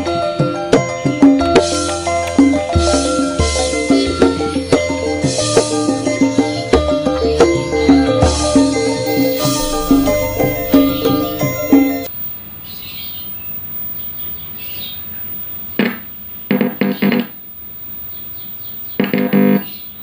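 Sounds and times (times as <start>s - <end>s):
background music: 0.0s - 12.1s
faint bird chirps: 9.1s - 20.0s.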